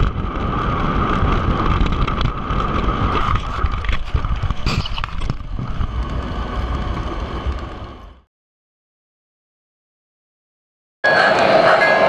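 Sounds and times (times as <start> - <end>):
model train cars rumbling on track: 0.0 - 8.2
high whine: 0.0 - 8.3.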